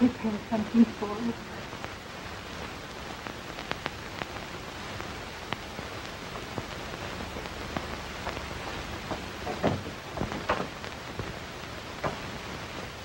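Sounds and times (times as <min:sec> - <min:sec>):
film soundtrack hiss: 0:00.0 - 0:13.0
faint clicks and pops: 0:01.6 - 0:13.0.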